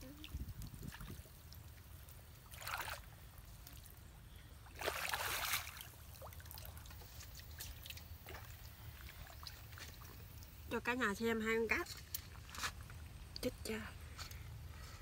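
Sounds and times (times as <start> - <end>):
water splashing: 0.0 - 4.0, 4.6 - 10.7.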